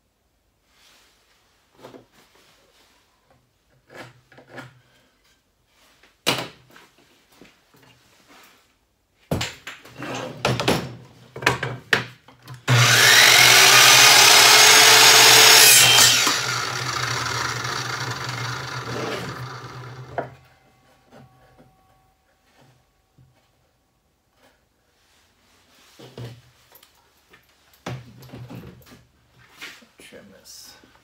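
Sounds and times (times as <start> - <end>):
miter saw cutting wood: 12.7 - 20.4.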